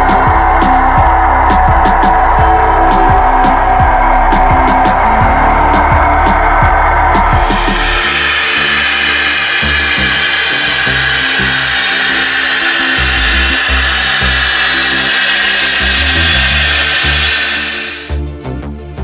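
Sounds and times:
rolling track noise: 0.0s - 18.1s
background music: 0.0s - 19.0s
model train motor whining: 4.3s - 18.1s.

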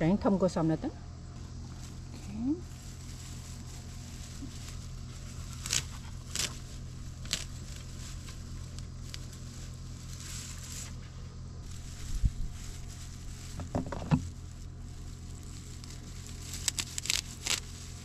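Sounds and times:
low hum: 0.0s - 18.0s
stems crackling: 1.3s - 18.0s
crisp snips of stems: 3.9s - 11.0s, 15.0s - 18.0s.

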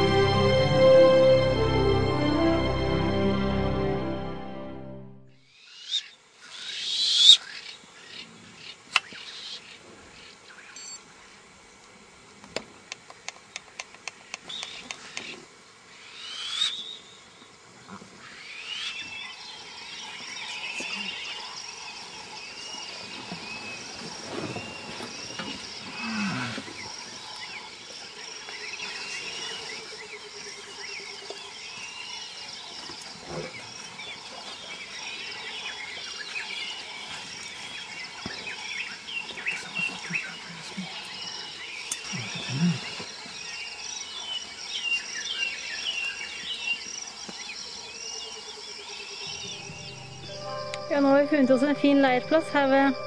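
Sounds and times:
high insect drone: 14.2s - 53.0s
elephants low rumbling calls: 22.6s - 27.8s, 39.5s - 43.4s.

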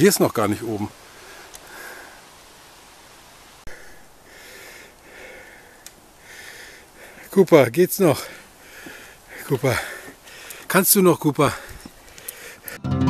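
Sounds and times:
person breathing hard: 1.1s - 2.3s, 3.7s - 7.3s, 8.2s - 10.7s, 11.5s - 12.8s.

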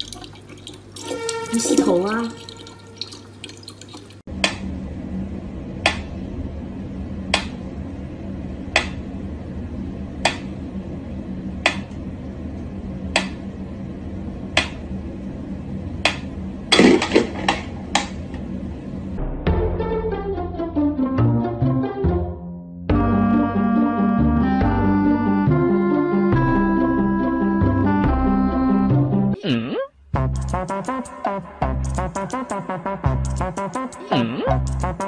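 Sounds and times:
low steady hum: 0.0s - 19.3s.

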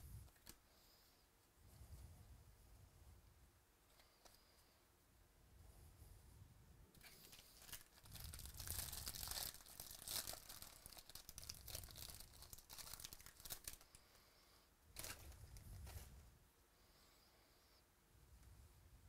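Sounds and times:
foil wrapper tearing and crinkling: 7.0s - 13.9s.

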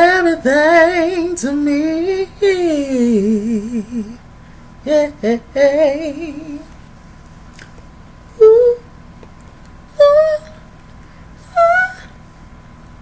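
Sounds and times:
man singing with vibrato: 0.0s - 4.2s, 4.9s - 6.7s, 8.4s - 8.8s, 11.5s - 12.1s.

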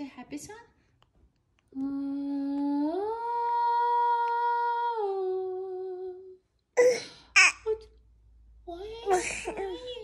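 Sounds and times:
woman singing wordless tune: 1.7s - 6.4s.

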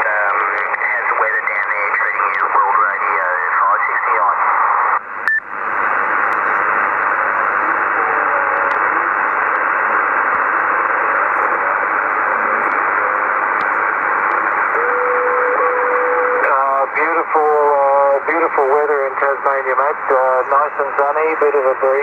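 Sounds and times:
radio static hiss: 0.0s - 22.0s
whistle-like radio tone: 14.8s - 16.5s.

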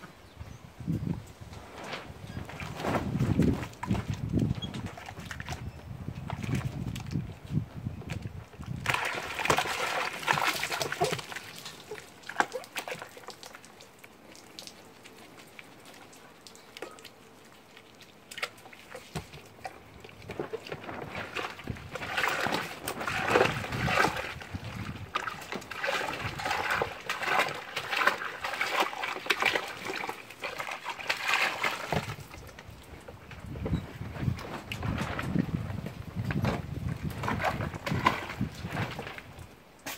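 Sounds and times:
thin stream of water running: 0.0s - 39.9s
monkeys splashing in water: 8.8s - 32.8s.

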